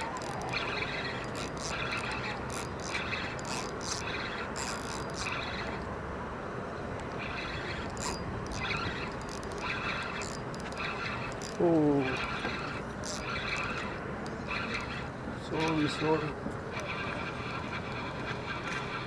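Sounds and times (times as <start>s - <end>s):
fishing reel clicking: 0.0s - 5.9s, 7.0s - 19.0s
steady background noise: 0.0s - 19.0s.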